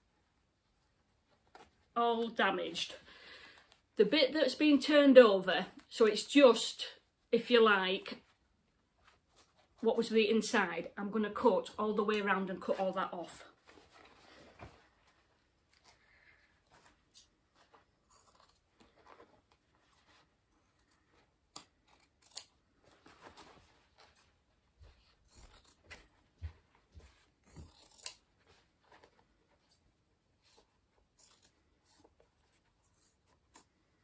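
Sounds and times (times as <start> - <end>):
scissors snipping through denim: 18.0 - 18.7, 20.8 - 22.5, 27.4 - 28.3, 31.1 - 32.0.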